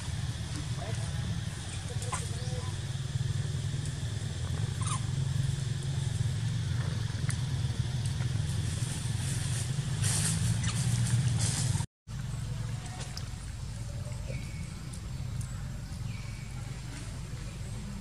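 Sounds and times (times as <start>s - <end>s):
hissing rustle: 8.0s - 11.9s.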